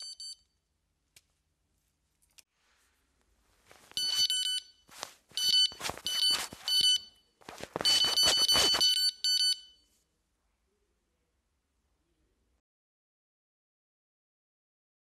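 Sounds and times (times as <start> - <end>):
electronic bite alarm beeping: 0.0 - 0.4, 5.4 - 7.2, 7.8 - 9.8
card scraping against plastic: 4.9 - 8.9.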